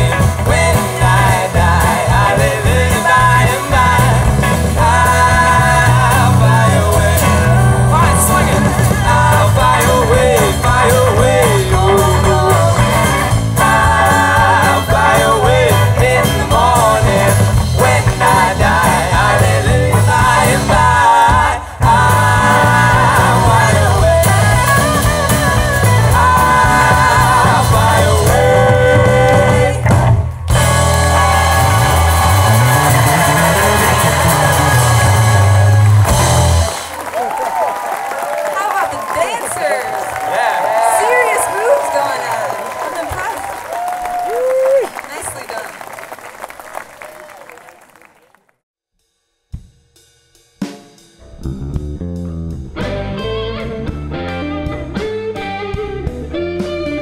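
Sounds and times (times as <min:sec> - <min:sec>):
live folk-rock band playing: 0:00.0 - 0:37.4, 0:51.3 - 0:57.0.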